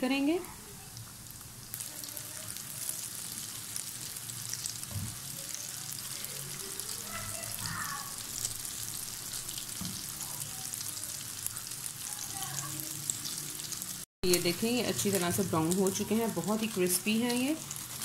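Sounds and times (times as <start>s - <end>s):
deep-frying sizzle: 0.0s - 18.0s.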